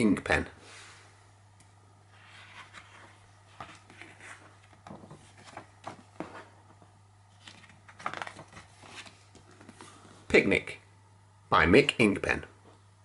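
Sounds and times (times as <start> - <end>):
book pages turning: 2.1 - 10.2.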